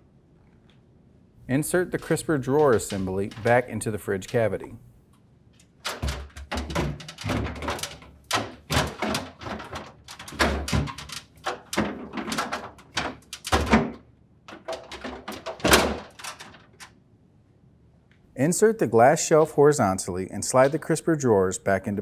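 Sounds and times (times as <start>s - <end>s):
plastic drawer frame knocking: 5.9s - 16.2s.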